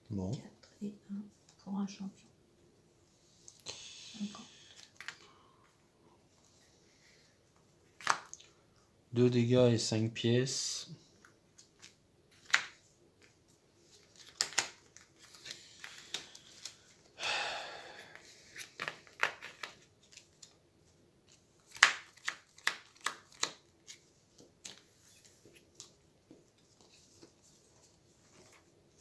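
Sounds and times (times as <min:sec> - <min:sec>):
playing cards slapping on table: 0:11.8 - 0:12.8, 0:21.7 - 0:23.6.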